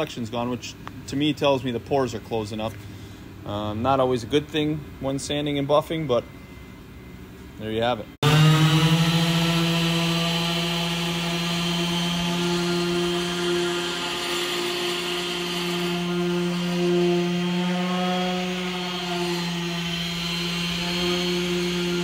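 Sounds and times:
orbital sander humming: 8.2s - 22.0s.

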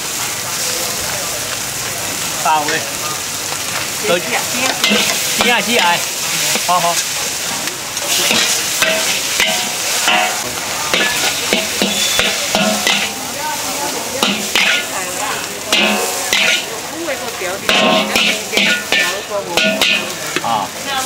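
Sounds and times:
food sizzling in a wok: 0.0s - 21.0s
metal spatula scraping a pan: 4.6s - 7.2s, 8.0s - 13.3s, 14.2s - 15.1s, 15.7s - 16.7s, 17.6s - 20.6s.

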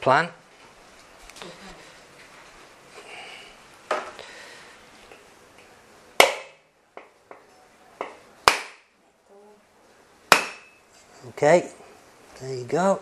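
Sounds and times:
cleaver striking coconut: 6.2s - 6.6s, 8.0s - 8.9s, 10.3s - 10.8s.

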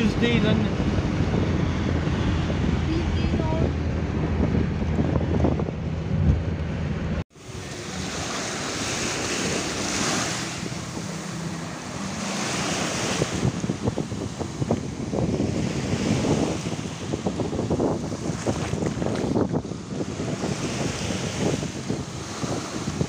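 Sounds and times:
car road noise: 0.0s - 23.0s
wind on microphone: 0.0s - 23.0s
small waves washing on beach: 7.3s - 23.0s.

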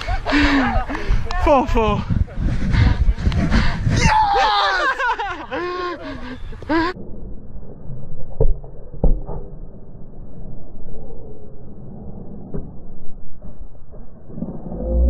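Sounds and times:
low rumble: 6.6s - 15.0s.

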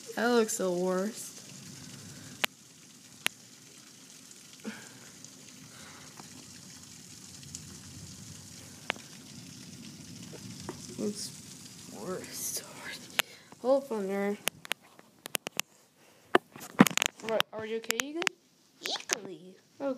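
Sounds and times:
heavy rain through window: 0.0s - 14.8s.

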